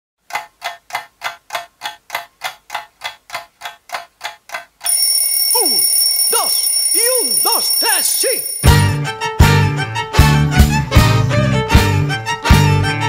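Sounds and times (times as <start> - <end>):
evenly spaced ticking: 0.2 - 9.0
steady high electronic tone: 4.9 - 9.0.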